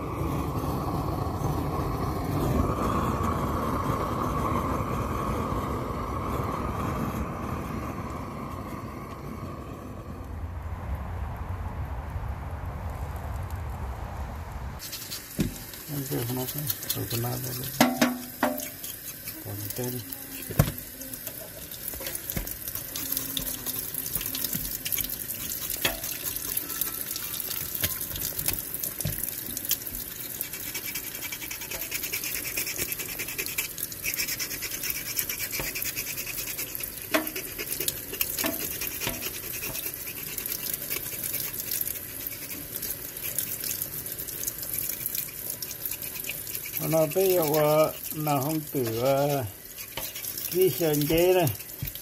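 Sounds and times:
tap running into steel sink: 0:15.3 - 0:15.8, 0:17.6 - 0:18.8, 0:20.4 - 0:26.6, 0:27.6 - 0:30.1, 0:37.1 - 0:39.9, 0:50.0 - 0:52.0
knife scraping skin: 0:30.4 - 0:41.6, 0:49.8 - 0:50.6.

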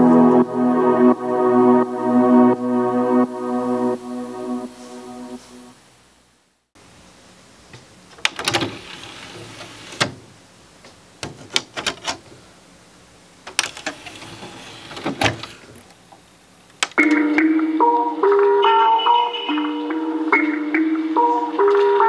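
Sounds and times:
music from boombox speakers: 0:00.0 - 0:05.8, 0:17.0 - 0:22.0
cd tray opening and closing: 0:08.2 - 0:10.3, 0:11.2 - 0:12.3, 0:13.5 - 0:15.9
boombox buttons clicking: 0:16.7 - 0:17.2.

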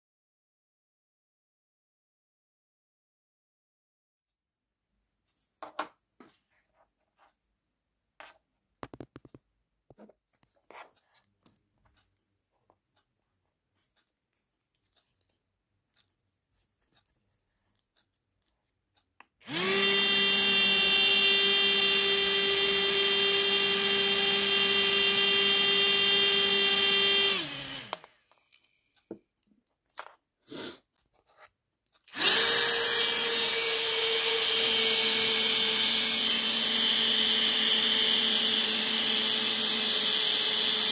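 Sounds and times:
small electric motor whine: 0:19.4 - 0:28.4, 0:32.1 - 0:40.9.

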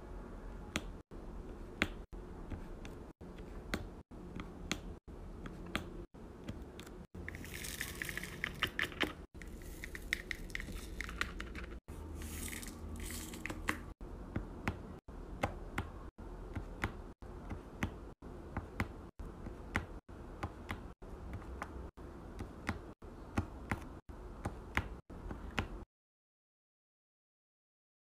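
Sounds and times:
plastic beads rattling in tray: 0:07.3 - 0:11.4, 0:12.2 - 0:13.6.

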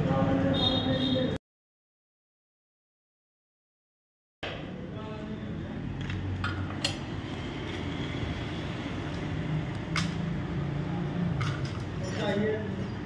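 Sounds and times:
metal chain clinking: 0:09.0 - 0:10.2, 0:11.4 - 0:12.4.

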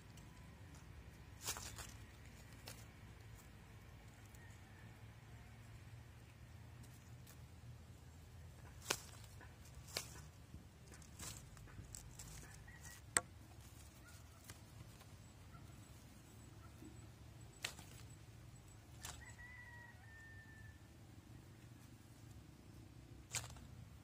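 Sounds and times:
faint outdoor ambience: 0:00.0 - 0:24.0
faint high bird call: 0:12.2 - 0:20.9.

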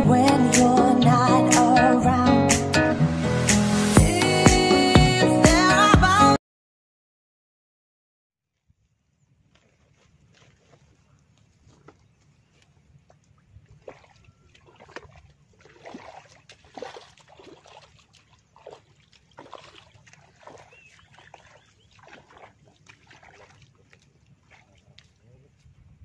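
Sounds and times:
bare feet squelching in mud: 0:09.4 - 0:26.0.

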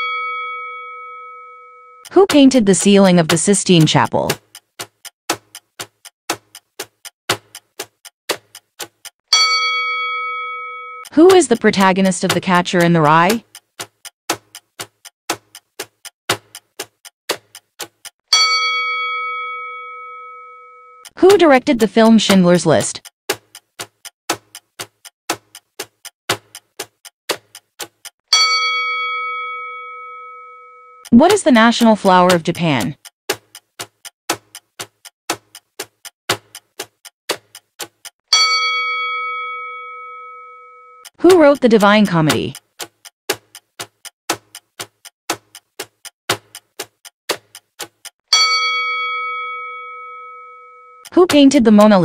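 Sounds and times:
bell-like chime: 0:00.0 - 0:02.0, 0:09.4 - 0:11.1, 0:18.4 - 0:21.0, 0:28.4 - 0:31.0, 0:38.3 - 0:41.0, 0:48.3 - 0:51.0
clock ticking: 0:02.0 - 0:52.0.

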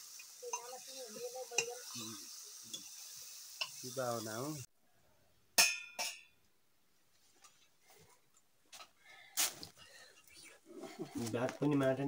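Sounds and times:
meat sizzling in a pot: 0:00.0 - 0:04.7.

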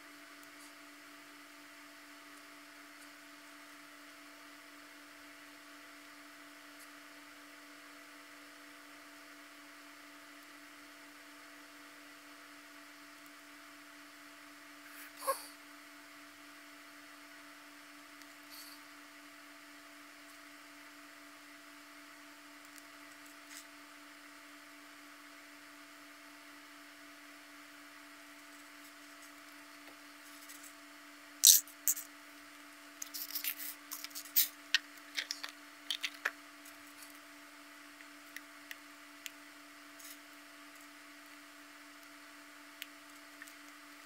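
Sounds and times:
faint steady hum: 0:00.0 - 0:44.0
plastic puzzle parts clicking: 0:35.2 - 0:36.3.

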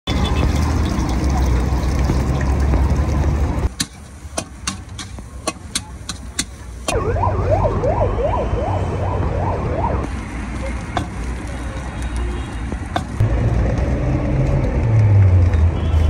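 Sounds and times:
siren wailing: 0:06.9 - 0:10.1
steady low rumble: 0:07.0 - 0:10.1.

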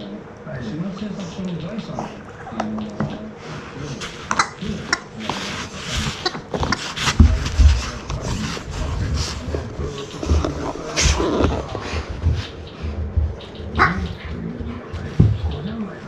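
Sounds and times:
dogs scuffling on carpet: 0:03.0 - 0:16.0
dull thumps: 0:04.2 - 0:15.8.

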